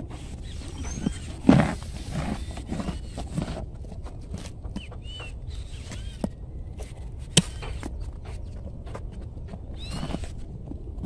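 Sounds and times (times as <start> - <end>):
small birds chirping: 0.0 - 10.8
horse chewing carrot: 0.0 - 11.0.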